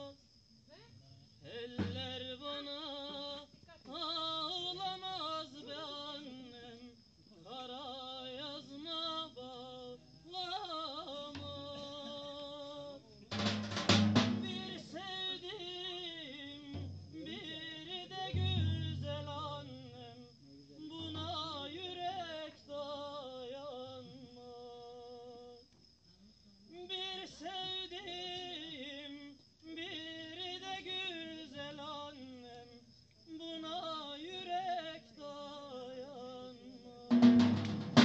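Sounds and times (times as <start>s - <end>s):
person singing unaccompanied: 0.0s - 0.2s, 1.4s - 25.6s, 26.6s - 38.0s
large drum fast beat: 13.3s - 15.0s, 16.8s - 17.6s, 18.3s - 19.7s, 37.1s - 38.0s.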